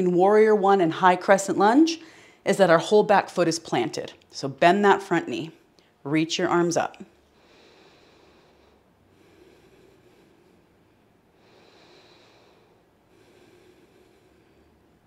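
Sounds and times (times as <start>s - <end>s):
person breathing slowly: 7.3s - 15.0s.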